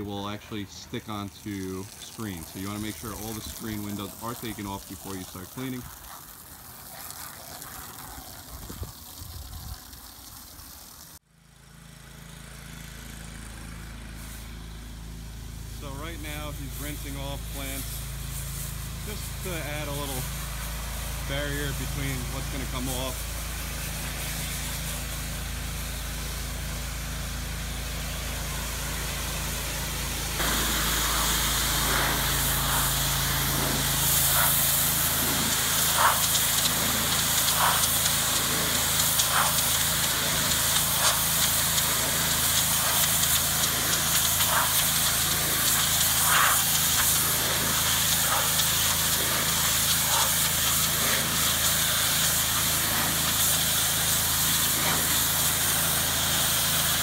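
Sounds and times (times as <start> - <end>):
pressure washer spray hissing: 0.0 - 11.2, 14.1 - 57.0
water spattering on wood: 0.0 - 11.2, 30.4 - 57.0
pressure washer engine hum: 0.0 - 57.0.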